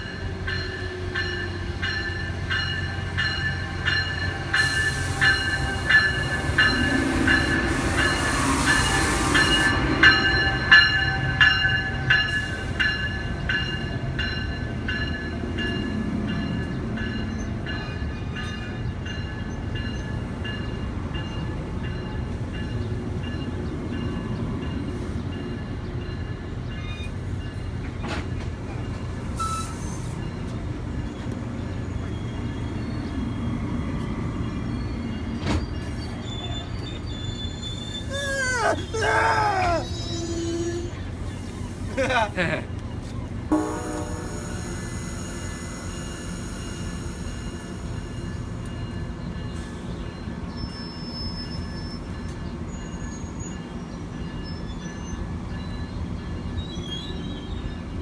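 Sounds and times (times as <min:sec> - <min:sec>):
train wheels clicking on rail joints: 0:00.0 - 0:31.6, 0:44.0 - 0:54.9
high brake squeal: 0:29.4 - 0:30.3, 0:35.4 - 0:41.9, 0:43.8 - 0:48.4, 0:50.5 - 0:53.7, 0:56.5 - 0:57.8.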